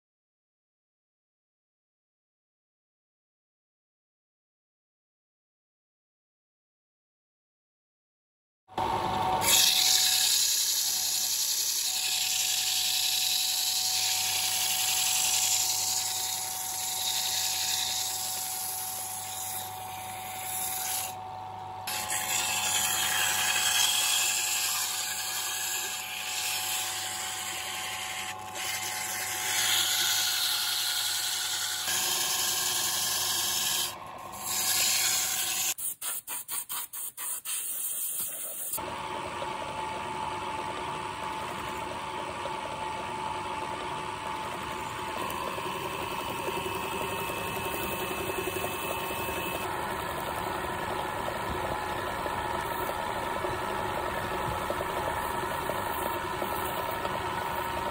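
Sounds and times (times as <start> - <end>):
lathe motor hum: 8.7 - 35.8, 38.8 - 57.9
sandpaper rubbing on wood: 34.5 - 38.8.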